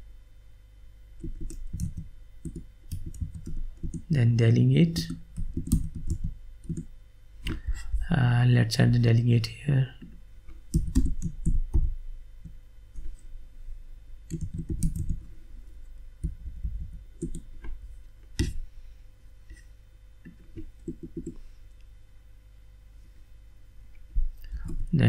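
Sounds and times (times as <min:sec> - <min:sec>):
typing on a computer keyboard: 0:01.2 - 0:04.1, 0:05.0 - 0:06.9, 0:10.7 - 0:11.8, 0:14.3 - 0:15.3, 0:16.2 - 0:17.5, 0:20.8 - 0:21.4.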